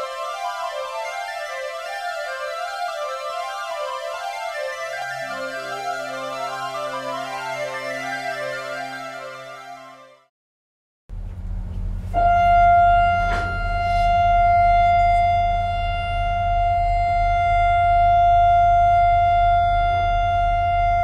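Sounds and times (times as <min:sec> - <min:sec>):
low steady rumble: 0:11.1 - 0:21.0
boat horn blast: 0:12.1 - 0:21.0.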